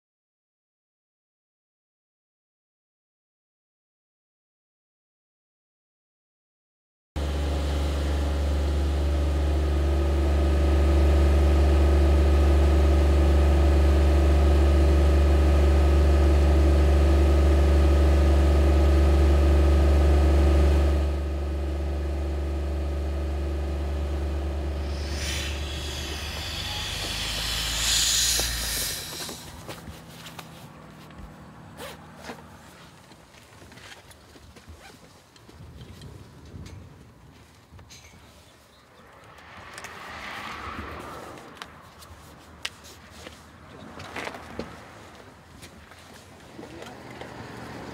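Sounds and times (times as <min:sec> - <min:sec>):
machine engine humming: 0:07.2 - 0:32.8
rush of hiss: 0:24.7 - 0:29.8.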